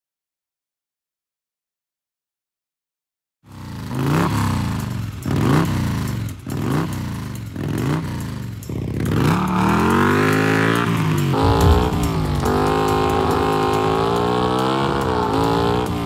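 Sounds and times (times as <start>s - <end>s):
motorcycle engine revving: 3.6s - 16.0s.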